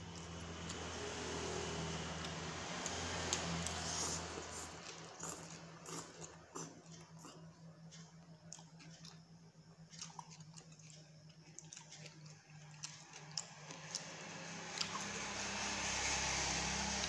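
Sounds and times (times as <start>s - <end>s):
steady low hum: 0.0s - 17.0s
person slurping noodles: 3.7s - 7.4s.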